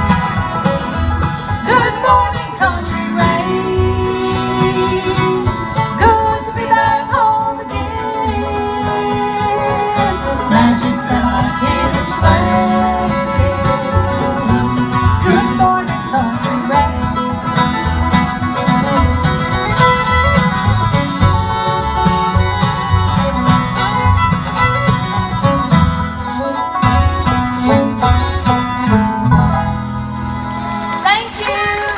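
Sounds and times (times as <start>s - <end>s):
bluegrass band playing: 0.0s - 31.9s
woman singing: 1.6s - 17.2s.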